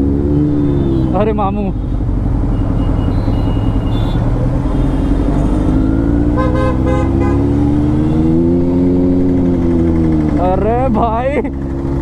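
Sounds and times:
motorcycle engine accelerating: 0.0s - 12.0s
vehicle horn short toots: 6.4s - 7.5s.

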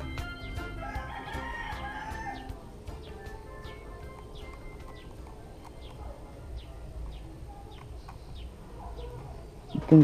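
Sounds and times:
background music with held notes: 0.0s - 6.7s
rooster crowing: 0.6s - 3.4s.

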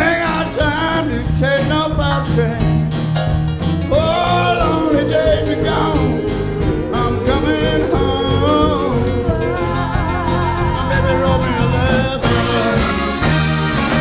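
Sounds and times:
live rock soul band playing: 0.0s - 14.0s
steady drum beat: 0.0s - 14.0s
voice singing with vibrato: 3.9s - 13.1s.

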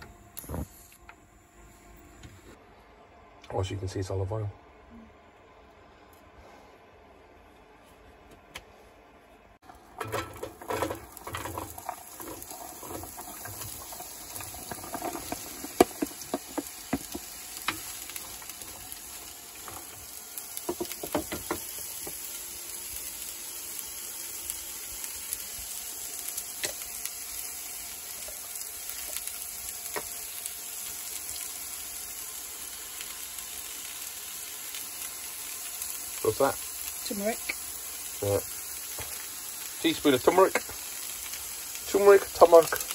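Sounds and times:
vegetables sizzling in oil: 9.7s - 42.9s
spoon knocking and scraping pan: 10.0s - 18.4s, 20.6s - 22.2s.

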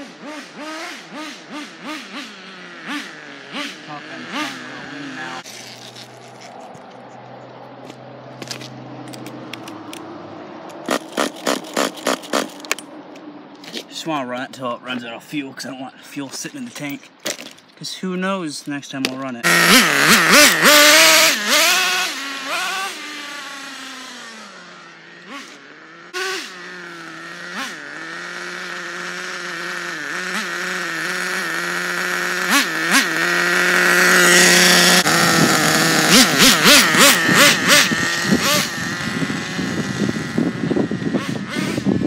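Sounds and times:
rc car engine whining: 0.0s - 6.5s, 10.8s - 12.8s, 19.4s - 42.0s.

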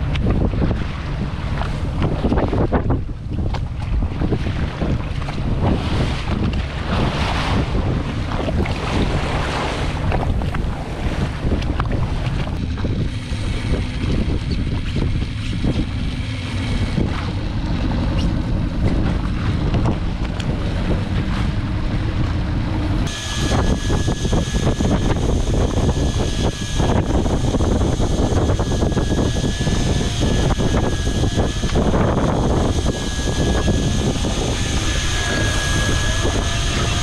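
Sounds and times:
water rushing along hull: 0.0s - 37.0s
wind buffeting microphone: 0.0s - 37.0s
thin high whine: 5.1s - 37.0s.

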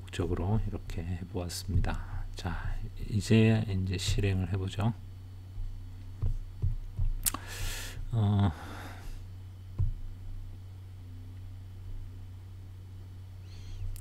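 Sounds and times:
low electrical hum: 0.0s - 14.0s.

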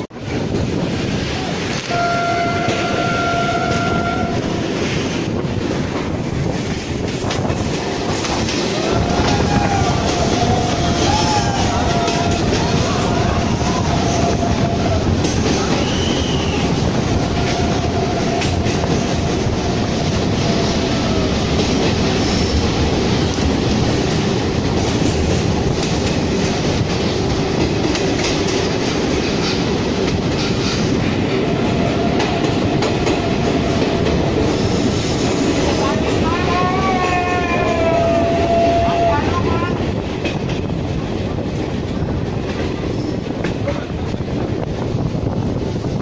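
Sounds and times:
train wheels rumbling on rails: 0.0s - 46.0s.

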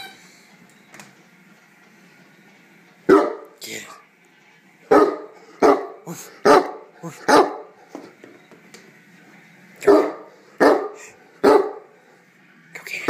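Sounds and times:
large dog barking: 3.1s - 3.5s, 4.9s - 7.7s, 9.8s - 11.9s.

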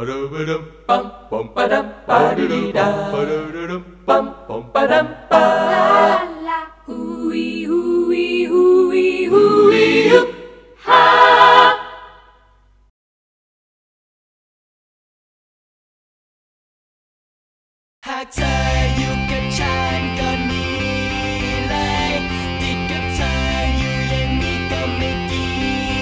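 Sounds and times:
voices singing in harmony: 0.0s - 12.5s, 18.1s - 26.0s.

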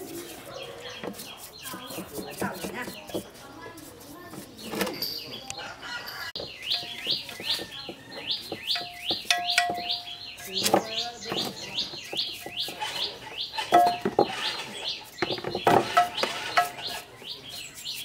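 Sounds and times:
bird chirping rapidly: 6.3s - 18.0s.

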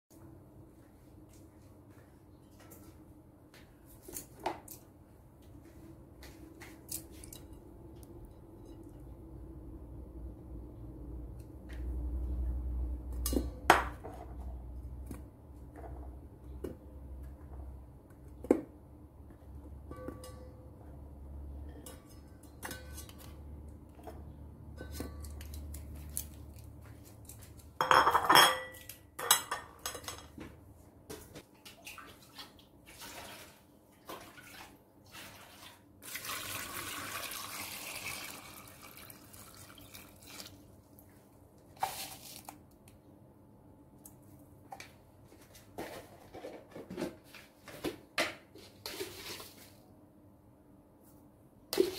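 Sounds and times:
metal tongs clinking on pot: 21.7s - 23.4s
water pouring into pot: 33.0s - 40.7s.

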